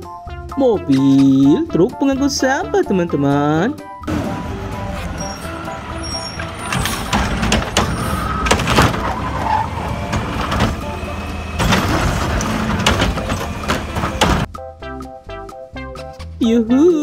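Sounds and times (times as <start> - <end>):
garbage truck engine rumble: 4.1 - 14.5
hydraulic arm lifting bin: 4.1 - 14.5
metal clanks and bangs: 4.1 - 14.5.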